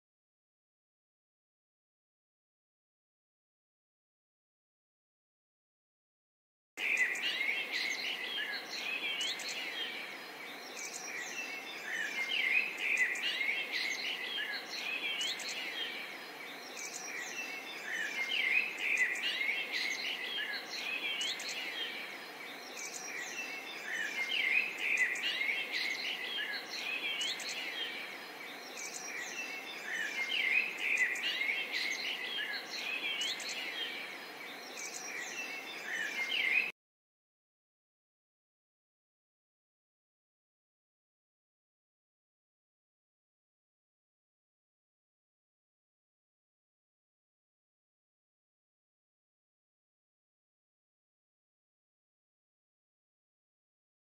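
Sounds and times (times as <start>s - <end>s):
small birds chirping: 6.8s - 36.8s.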